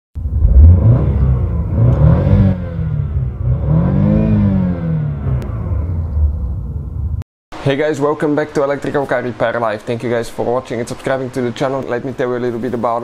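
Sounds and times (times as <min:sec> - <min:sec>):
engine revving: 0:00.2 - 0:07.2.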